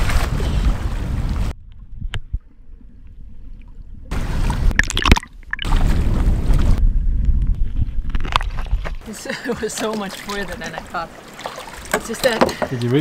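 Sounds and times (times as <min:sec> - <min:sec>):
wind rumble on microphone: 0:00.0 - 0:09.1
sea water sloshing: 0:02.2 - 0:06.8, 0:08.2 - 0:13.0
sharp water splashes: 0:04.1 - 0:06.8, 0:08.3 - 0:13.0.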